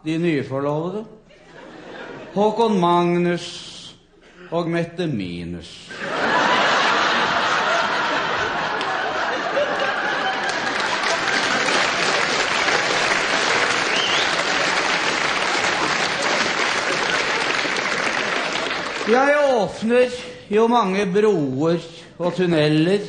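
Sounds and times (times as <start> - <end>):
audience laughing: 1.3 - 2.4, 5.9 - 19.2
audience clapping: 6.2 - 19.6.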